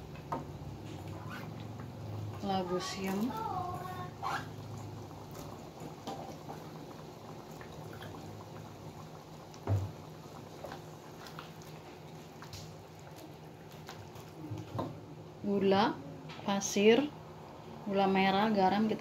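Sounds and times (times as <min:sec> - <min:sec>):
broth bubbling: 0:01.0 - 0:14.8.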